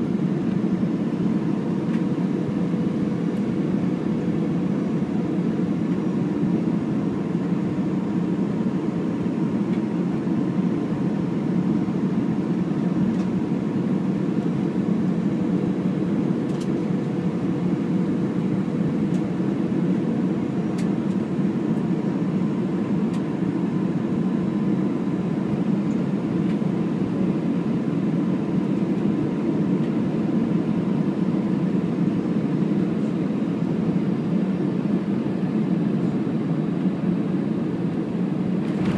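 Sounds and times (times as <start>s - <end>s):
airflow rushing in aircraft cabin: 0.0s - 38.9s
faint whine: 35.7s - 38.9s
engine hum: 38.4s - 38.9s.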